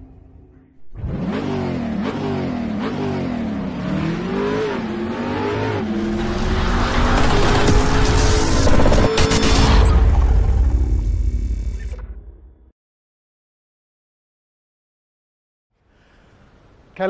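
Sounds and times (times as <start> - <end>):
car engine revving: 0.8 - 10.9.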